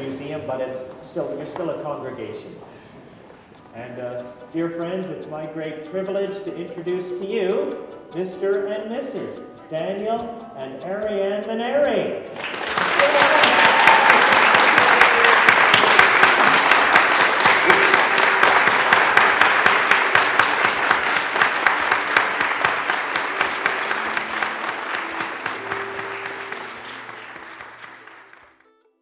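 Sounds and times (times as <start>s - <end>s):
faint music notes: 0.0s - 28.9s
crowd applauding: 12.3s - 28.8s.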